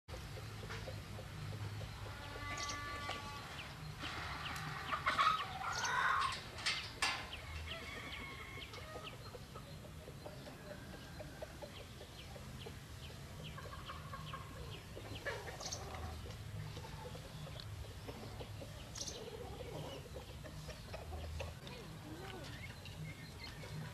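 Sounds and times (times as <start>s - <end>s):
chickens clucking: 0.1s - 23.9s
rooster crowing: 7.5s - 9.0s.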